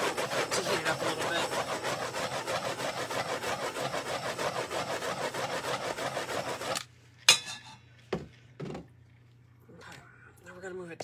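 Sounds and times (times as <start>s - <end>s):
torch flame hissing: 0.0s - 6.8s.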